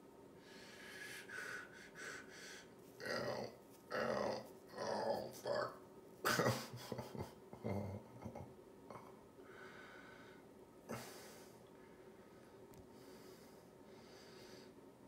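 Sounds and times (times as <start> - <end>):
man breathing hard: 0.4 - 2.8, 9.4 - 14.8
man grunting: 3.0 - 9.1.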